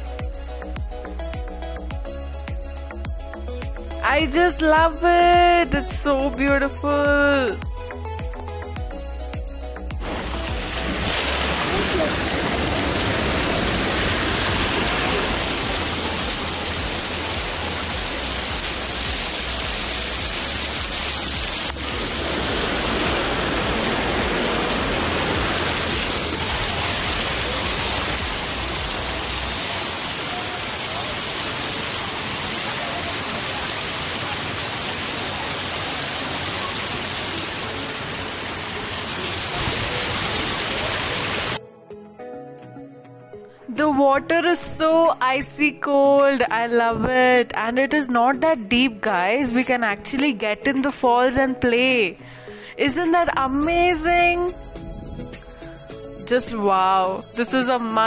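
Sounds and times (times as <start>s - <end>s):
waterfall splashing over rocks: 10.0s - 41.6s.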